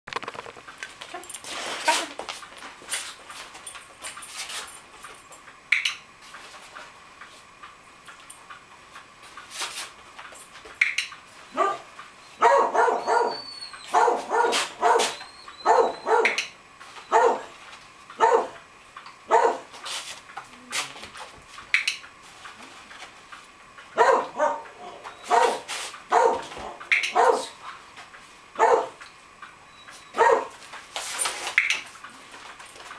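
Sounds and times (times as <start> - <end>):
dog barking: 11.6 - 16.4, 17.1 - 17.5, 18.2 - 18.6, 19.3 - 19.7, 24.0 - 27.6, 28.6 - 29.0, 30.2 - 30.5.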